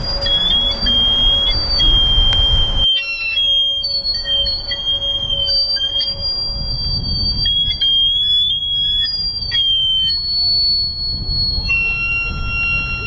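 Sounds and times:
low rumble: 0.0s - 9.5s
high electronic tones: 0.0s - 13.0s.

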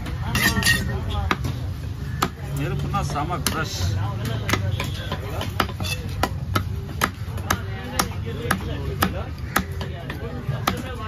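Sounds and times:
knife chopping fish on wood: 4.4s - 11.0s.

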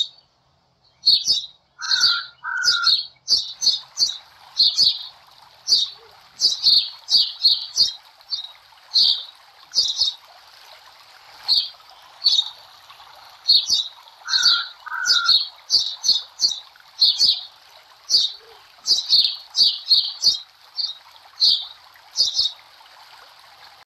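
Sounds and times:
birds chirping: 0.0s - 10.3s, 11.4s - 22.6s
running water hiss: 1.8s - 23.8s.

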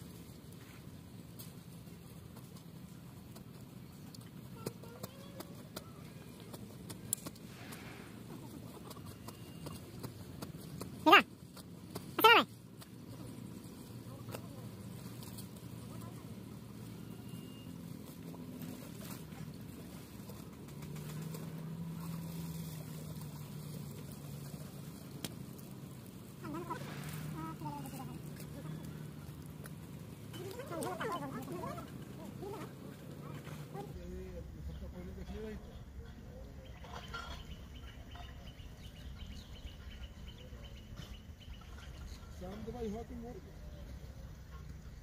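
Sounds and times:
low steady rumble: 0.0s - 45.0s
small engine running: 13.5s - 34.0s.

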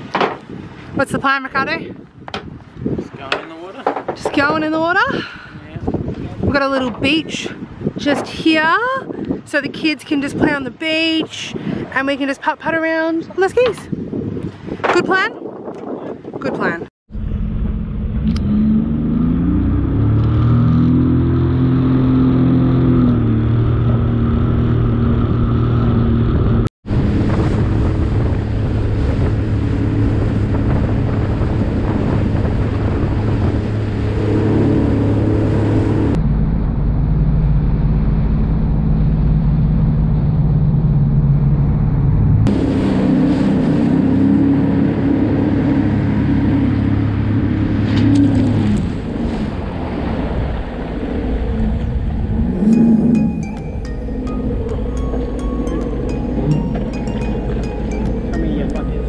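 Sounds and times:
jet ski engine running: 17.2s - 36.2s, 42.5s - 59.0s
water rushing past hull: 26.8s - 36.2s, 42.5s - 59.0s.

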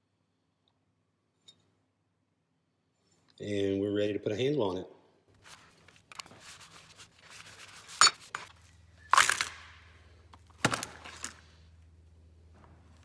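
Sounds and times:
handling noise: 5.4s - 11.6s
plastic clamps clattering: 10.3s - 11.4s.

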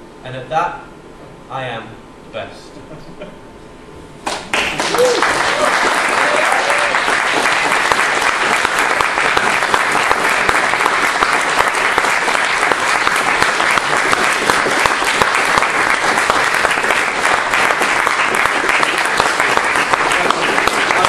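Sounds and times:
audience applauding: 4.3s - 21.0s.

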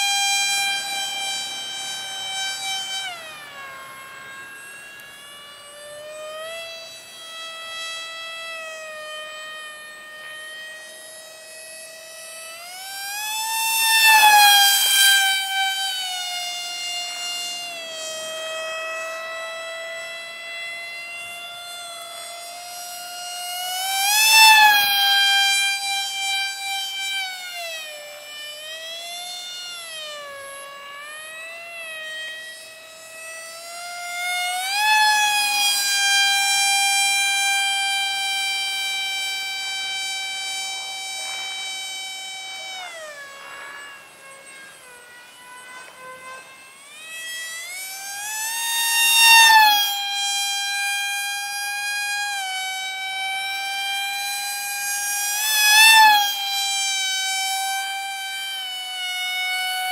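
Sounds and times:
electric motor propeller whine: 0.0s - 59.9s.

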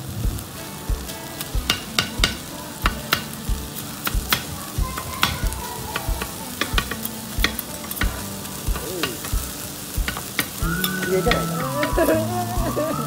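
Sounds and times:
steady sizzling: 0.0s - 13.0s
metal spatulas clacking on griddle: 1.4s - 9.4s, 10.0s - 11.9s.

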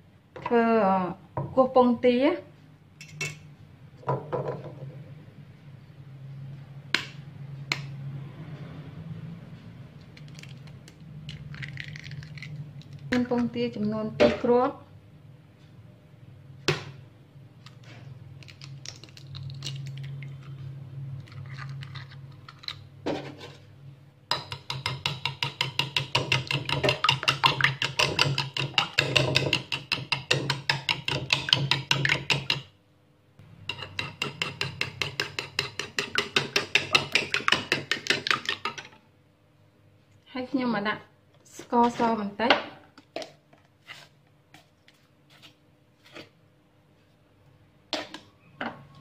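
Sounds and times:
spoon clinking against bowl: 3.0s - 3.5s.

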